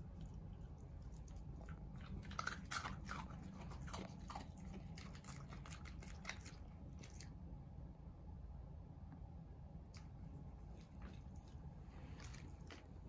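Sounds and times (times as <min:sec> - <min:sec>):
dog chewing crunchy treat: 0:00.0 - 0:07.4, 0:10.6 - 0:13.0.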